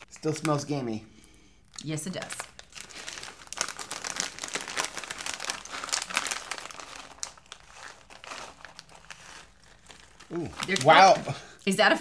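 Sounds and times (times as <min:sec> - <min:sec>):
chip bag crackling: 0:02.1 - 0:11.3.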